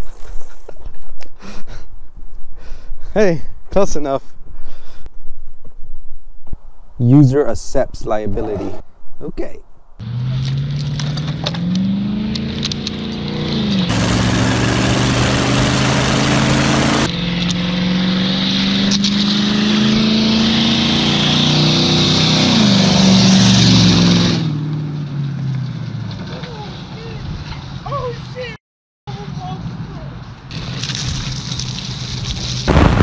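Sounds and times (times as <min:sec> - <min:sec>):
car engine accelerating: 0:10.0 - 0:26.5
loud rush of noise: 0:13.9 - 0:17.1.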